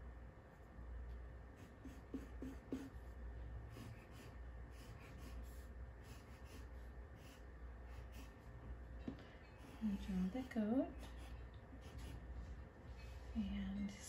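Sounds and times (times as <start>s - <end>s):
pencil scratching on paper: 1.6s - 8.5s, 9.5s - 12.6s.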